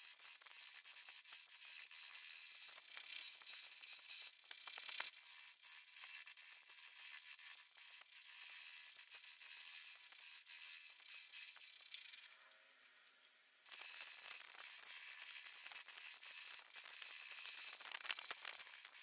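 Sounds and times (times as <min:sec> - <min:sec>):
chattering clicks of turning tool: 0:13.7 - 0:19.0.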